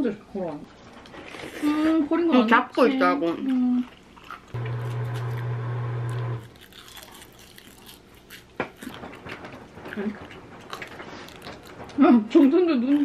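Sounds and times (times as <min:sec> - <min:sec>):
food being chewed and crunched: 0:03.3 - 0:11.9.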